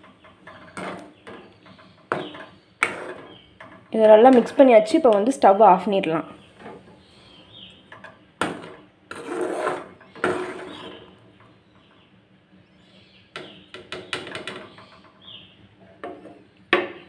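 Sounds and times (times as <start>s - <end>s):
ladle scraping through gravy: 9.1s - 11.2s.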